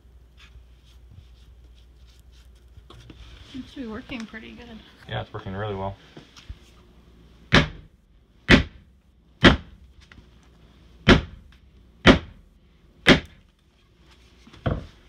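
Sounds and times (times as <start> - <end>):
sledgehammer striking timber beam: 7.5 - 7.9, 8.5 - 8.8, 9.4 - 9.8, 11.1 - 12.4, 13.0 - 13.4.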